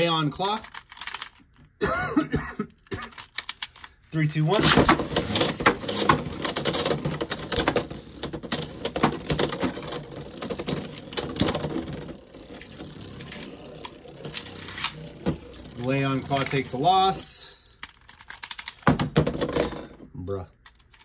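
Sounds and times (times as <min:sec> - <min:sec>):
tops scraping plastic: 0:02.9 - 0:21.0
spinning tops clattering: 0:04.6 - 0:16.8.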